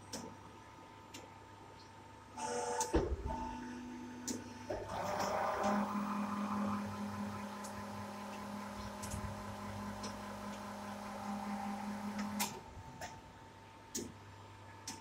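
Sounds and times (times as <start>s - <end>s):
machine hum: 3.4s - 13.2s.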